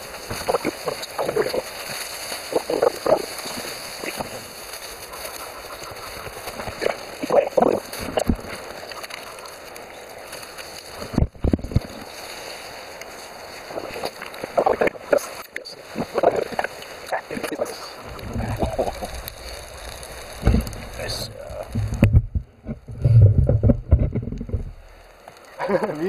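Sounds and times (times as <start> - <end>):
steady hiss: 0.0 - 26.0
wind buffeting microphone: 17.9 - 25.0.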